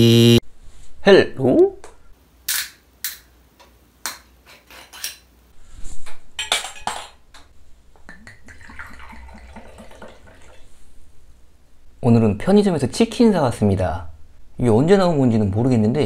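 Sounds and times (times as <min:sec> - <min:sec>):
liquid glugging from a bottle: 0:08.0 - 0:10.7.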